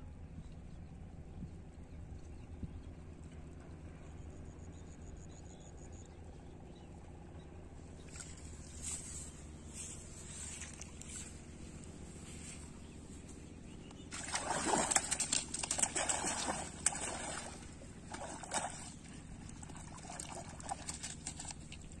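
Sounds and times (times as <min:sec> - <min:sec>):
water splashing and sloshing: 0:07.9 - 0:22.0.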